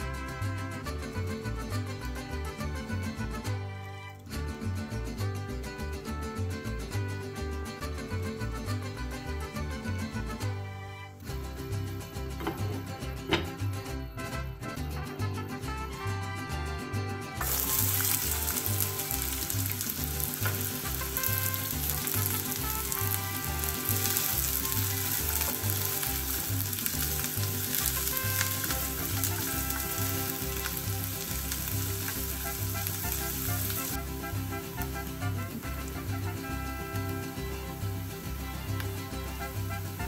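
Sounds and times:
onions sizzling in oil: 17.4 - 40.0.

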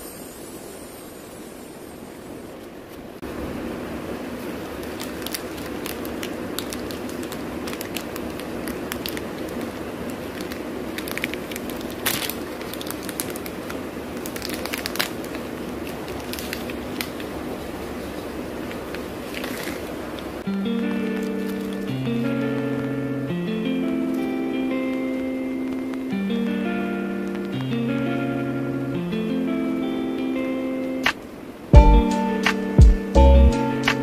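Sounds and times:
background hum: 0.0 - 34.0
wrapper crinkling: 4.3 - 26.2
wrapper snap: 4.4 - 23.0.

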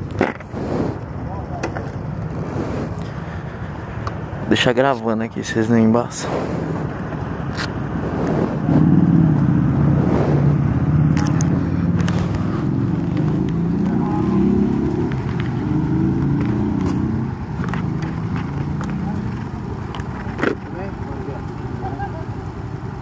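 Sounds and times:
vehicle engine running: 0.0 - 23.0
handling clicks and knocks: 16.4 - 20.8.

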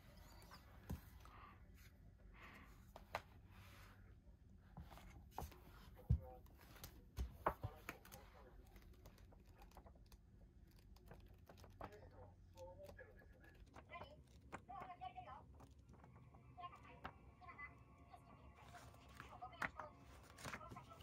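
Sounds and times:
magazine pages turning: 4.8 - 14.6, 18.6 - 21.0.

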